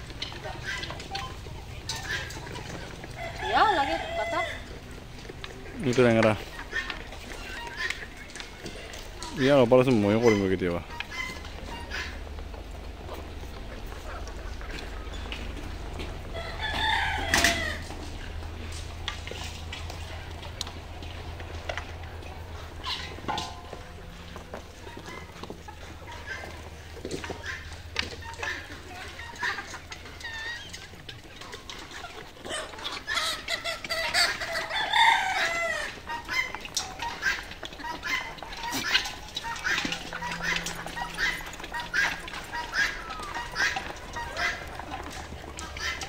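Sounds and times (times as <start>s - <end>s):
hens clucking: 0.0s - 46.0s
rooster crowing: 3.0s - 4.8s, 16.3s - 18.0s, 34.6s - 36.0s.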